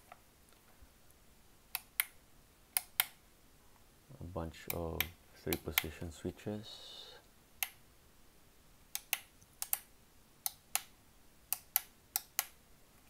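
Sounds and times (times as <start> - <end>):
metal toggle switches clicking: 4.7 - 5.9.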